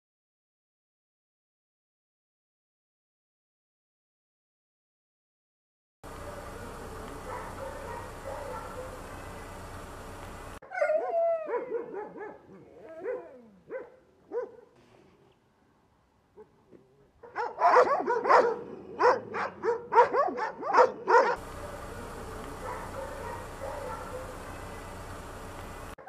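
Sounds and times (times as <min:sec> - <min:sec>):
dogs barking rapidly: 0:07.2 - 0:09.3, 0:10.6 - 0:14.8, 0:17.2 - 0:24.6
dogs yelping and whining: 0:07.3 - 0:09.0, 0:10.6 - 0:14.6, 0:17.4 - 0:21.4, 0:22.6 - 0:24.4.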